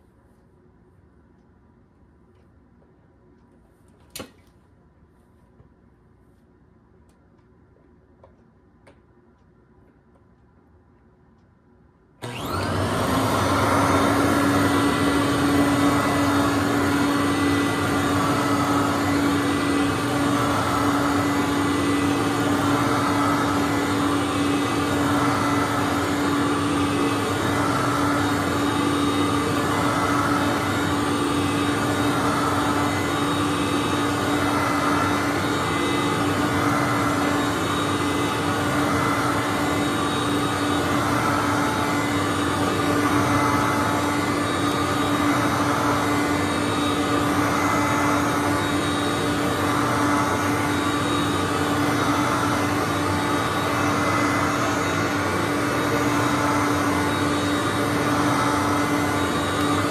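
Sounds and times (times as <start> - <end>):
vacuum cleaner on carpet: 12.2 - 59.9.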